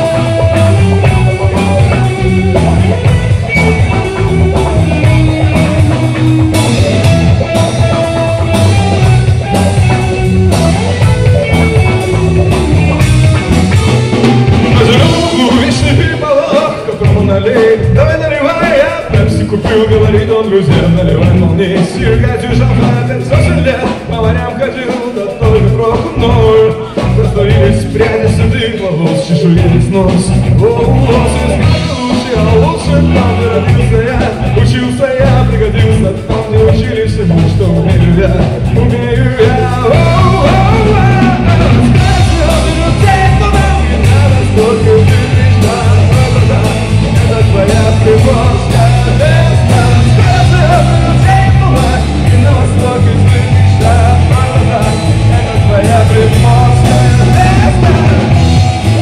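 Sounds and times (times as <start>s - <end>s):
drum kit beat: 0.0s - 59.0s
electric guitars: 0.0s - 59.0s.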